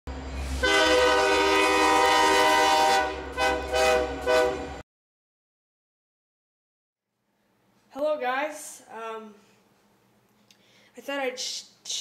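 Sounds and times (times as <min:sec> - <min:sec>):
locomotive air horn blasts: 0:00.4 - 0:04.8.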